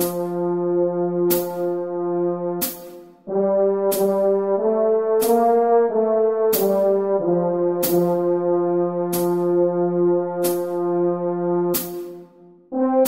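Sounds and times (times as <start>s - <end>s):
french horn melody: 0.0s - 13.0s
sharp percussive beat: 1.2s - 1.9s, 2.5s - 4.5s, 5.2s - 5.8s, 6.4s - 7.1s, 7.8s - 9.8s, 10.4s - 12.3s.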